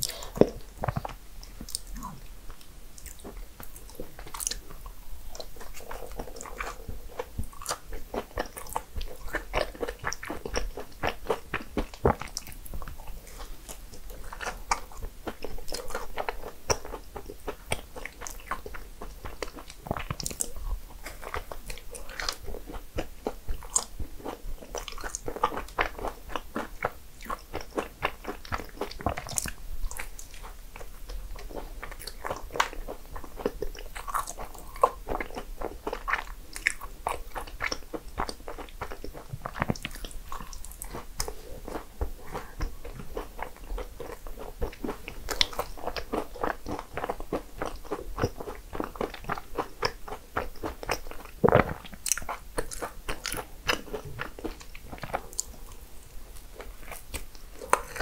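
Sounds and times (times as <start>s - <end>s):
person biting and chewing: 31.4s - 55.8s, 56.8s - 58.0s.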